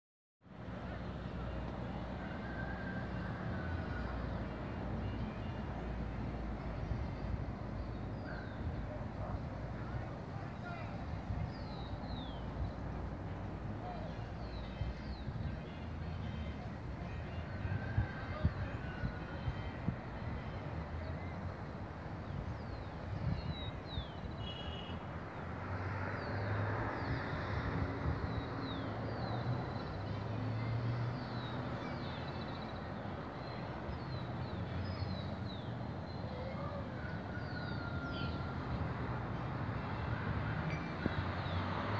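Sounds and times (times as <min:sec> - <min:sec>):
distant traffic hum: 0:00.4 - 0:41.9.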